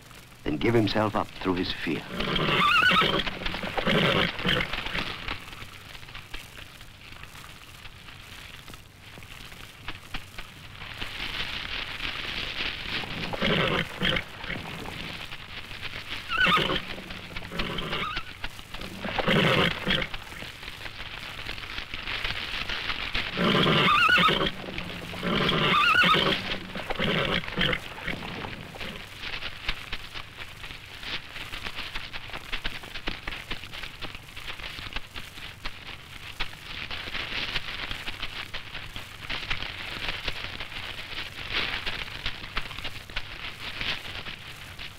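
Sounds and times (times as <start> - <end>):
fire burning hiss: 0.0 - 44.9
horse whinnying and neighing: 2.1 - 5.0, 13.0 - 15.3, 16.2 - 20.5, 23.3 - 29.0.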